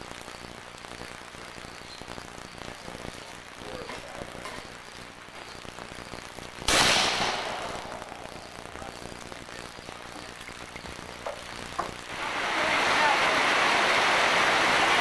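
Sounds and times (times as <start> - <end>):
revolver shot: 6.7 - 8.9.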